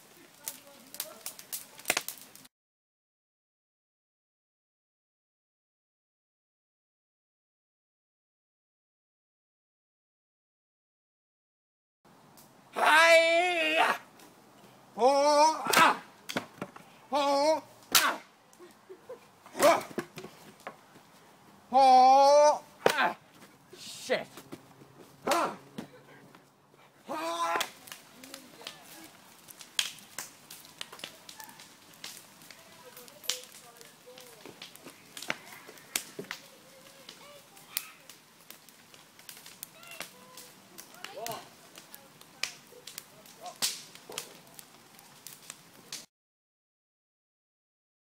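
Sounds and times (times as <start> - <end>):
wood fire crackling and popping: 0.0 - 2.5, 12.2 - 46.1.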